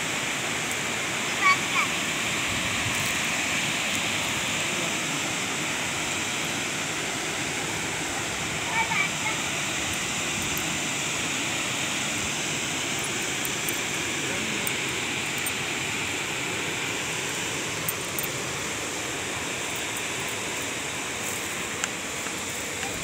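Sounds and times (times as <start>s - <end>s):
waterfall rushing over rocks: 0.0s - 23.0s.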